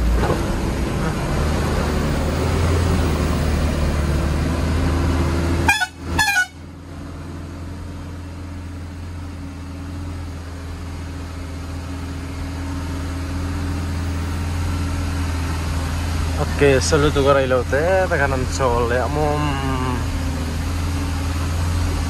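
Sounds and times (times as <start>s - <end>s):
vehicle engine and tyres droning: 0.0s - 22.0s
car horn toots: 5.6s - 6.7s.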